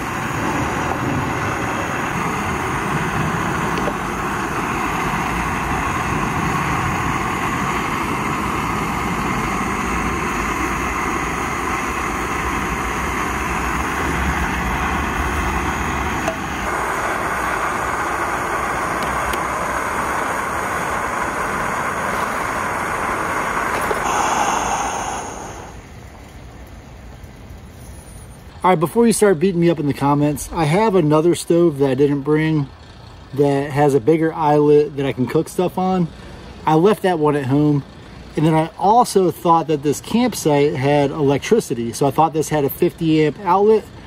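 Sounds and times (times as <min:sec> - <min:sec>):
gas stove burner hissing: 0:00.0 - 0:26.8.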